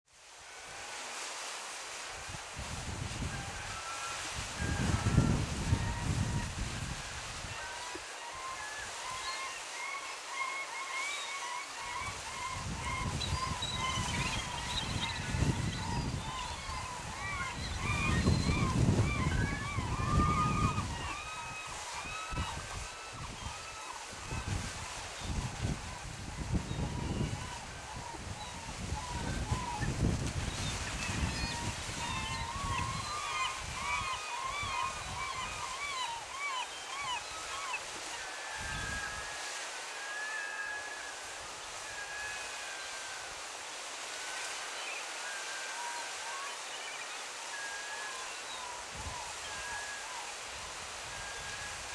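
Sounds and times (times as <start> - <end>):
gull calling: 15.2 - 24.0.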